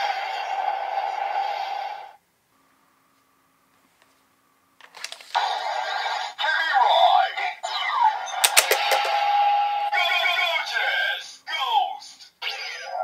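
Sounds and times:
toy belt clicking: 0:08.4 - 0:09.2.

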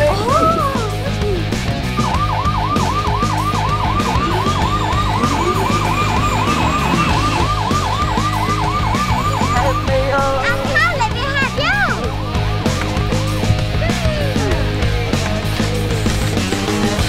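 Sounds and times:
yelping electronic siren: 0:00.2 - 0:14.8.

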